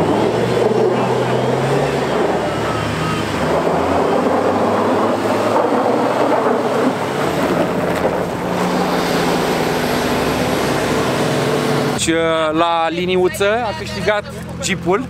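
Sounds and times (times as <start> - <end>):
tyres on ice and snow: 0.0 - 12.0
vehicle passing close: 0.0 - 12.4
engines revving: 0.0 - 15.0.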